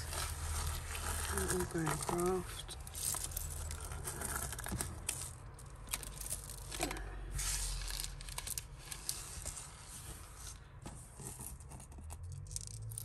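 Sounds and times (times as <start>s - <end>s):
plastic bags rustling: 0.0s - 11.2s.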